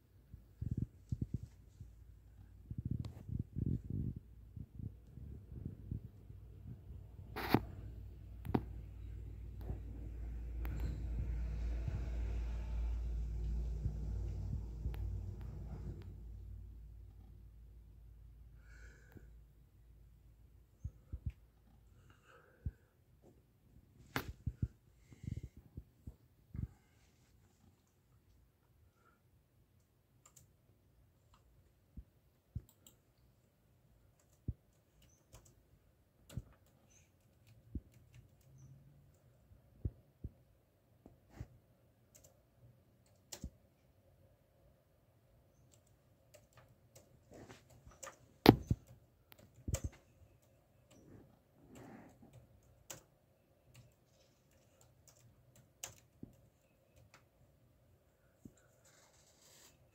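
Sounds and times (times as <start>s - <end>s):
irregular clicks and taps: 31.2s - 33.2s, 36.2s - 39.3s, 43.0s - 43.6s, 45.5s - 51.1s, 51.7s - 57.4s.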